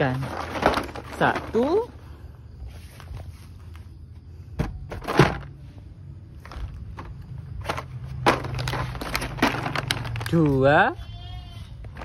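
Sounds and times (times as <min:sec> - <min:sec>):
plastic rustles and knocks: 0:00.1 - 0:01.8, 0:04.6 - 0:05.6, 0:06.4 - 0:10.4.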